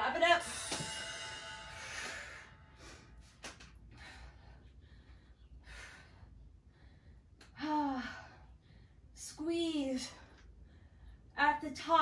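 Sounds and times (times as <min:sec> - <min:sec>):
woman breathing hard: 0:01.6 - 0:09.2.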